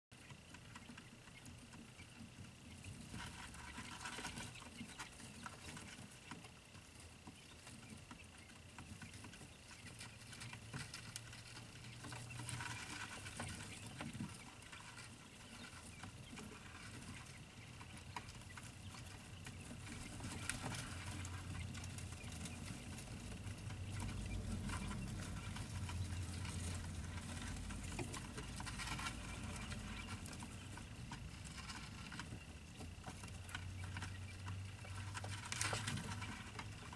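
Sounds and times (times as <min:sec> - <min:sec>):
chicks pecking clicks: 0:00.1 - 0:36.9.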